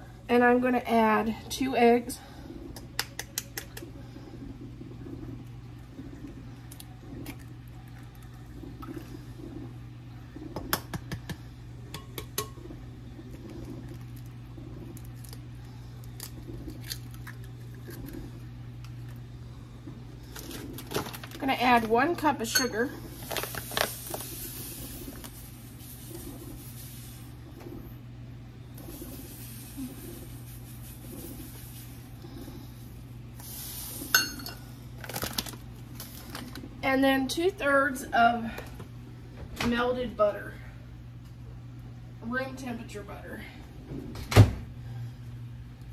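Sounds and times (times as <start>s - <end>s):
low steady hum: 0.0s - 45.9s
sugar pouring grainy hiss: 23.6s - 27.4s, 28.8s - 32.3s.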